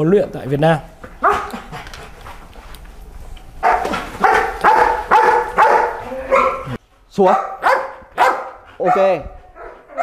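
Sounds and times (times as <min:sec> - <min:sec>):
dog barking: 0:01.2 - 0:01.8, 0:03.6 - 0:10.0.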